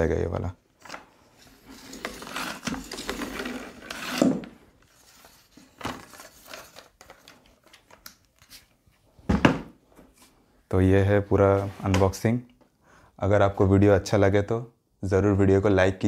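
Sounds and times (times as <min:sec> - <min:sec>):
plastic scrape: 0:00.8 - 0:07.3
mop rubbing in plastic bucket: 0:01.4 - 0:05.5.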